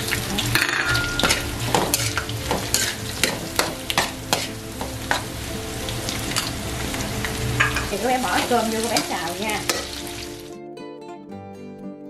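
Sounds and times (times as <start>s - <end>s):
mushrooms and garlic sizzling in oil: 0.0s - 10.5s
metal spatula scraping a wok: 0.6s - 5.3s, 6.2s - 10.3s.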